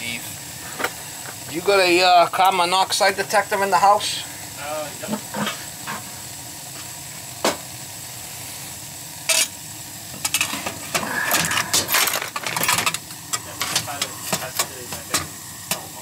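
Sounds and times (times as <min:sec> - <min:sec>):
boiler burners rushing flame: 0:00.0 - 0:16.0
metal clinks and rattles: 0:11.5 - 0:13.0.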